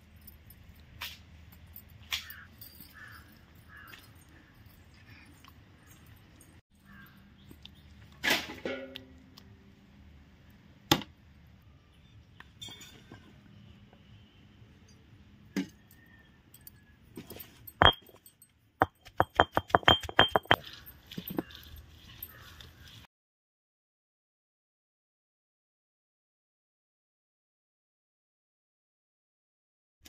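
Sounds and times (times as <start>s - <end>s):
cooking utensils clinking: 17.2s - 21.5s.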